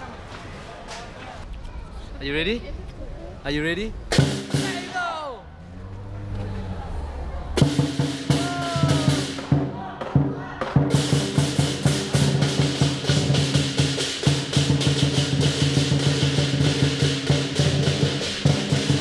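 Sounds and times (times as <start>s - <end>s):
drum beating: 4.1s - 5.1s, 7.6s - 19.0s.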